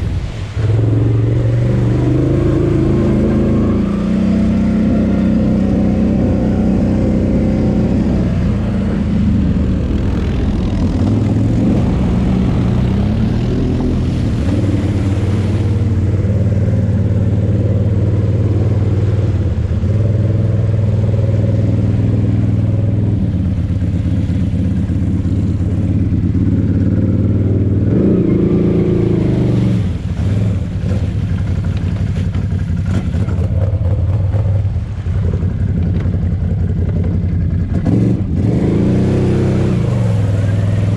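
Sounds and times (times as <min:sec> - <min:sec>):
water rushing and splashing: 0:00.0 - 0:40.9.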